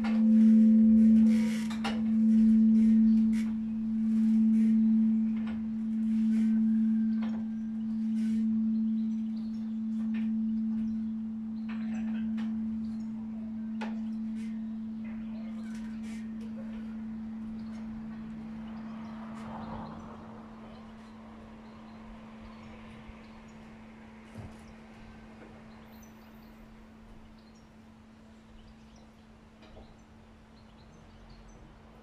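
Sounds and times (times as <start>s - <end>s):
church bell hum: 0.0s - 24.2s.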